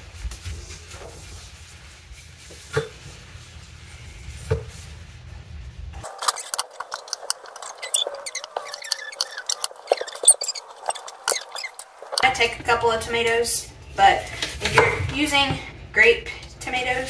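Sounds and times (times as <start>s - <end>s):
low background hum: 0.0s - 17.0s
knife slicing tomatoes: 6.0s - 12.3s.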